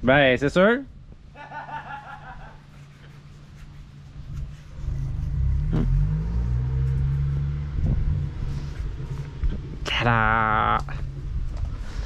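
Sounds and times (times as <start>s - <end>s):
car engine revving: 4.7s - 11.4s
car engine idling: 4.7s - 11.8s.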